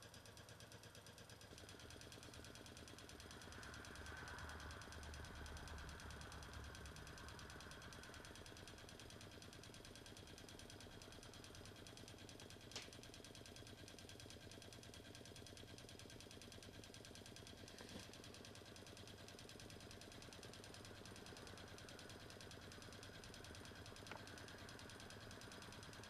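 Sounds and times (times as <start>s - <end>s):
small engine mechanical clatter: 0.0s - 26.0s.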